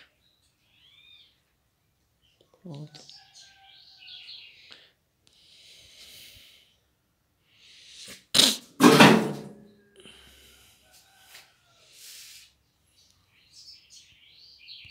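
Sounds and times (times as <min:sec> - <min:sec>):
person sneezing: 0:08.1 - 0:08.7.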